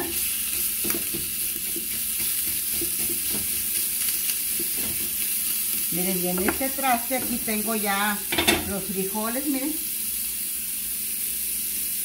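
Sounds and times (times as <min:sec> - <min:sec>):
bacon sizzling in a frying pan: 0:00.0 - 0:12.0
spoon scraping and tapping pan: 0:00.4 - 0:05.3, 0:06.3 - 0:07.6, 0:08.3 - 0:08.8.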